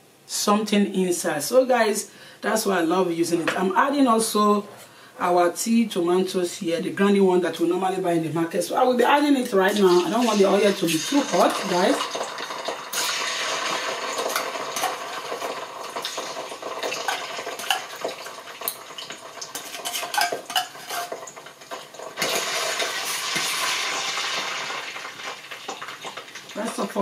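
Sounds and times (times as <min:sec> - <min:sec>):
paste sizzling in oil: 0:09.8 - 0:26.9
metal spoon scraping and clinking: 0:19.5 - 0:21.2.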